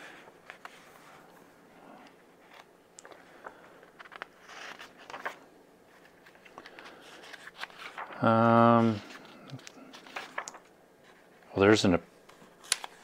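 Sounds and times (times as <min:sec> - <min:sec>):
paper pages rustling: 0:02.4 - 0:11.5, 0:12.3 - 0:13.0.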